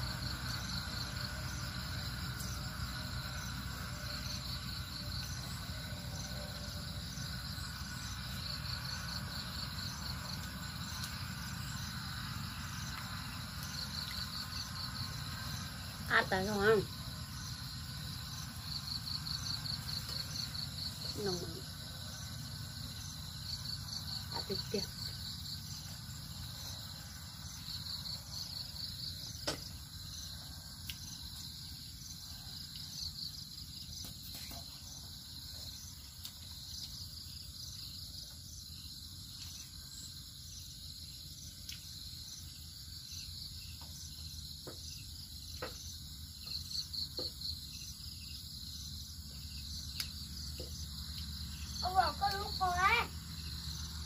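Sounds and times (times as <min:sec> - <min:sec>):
crickets chirping: 0:00.0 - 0:54.0.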